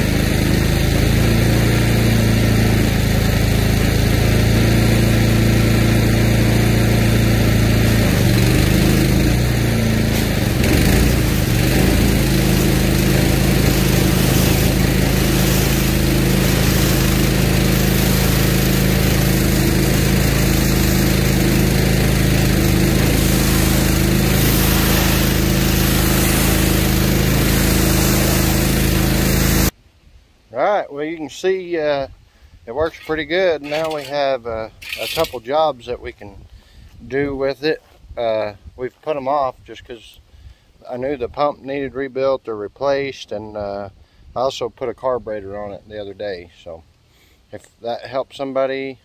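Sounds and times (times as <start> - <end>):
pressure washer engine running: 0.0 - 29.8, 32.8 - 35.5
water jet hissing: 8.0 - 29.8, 34.8 - 35.4.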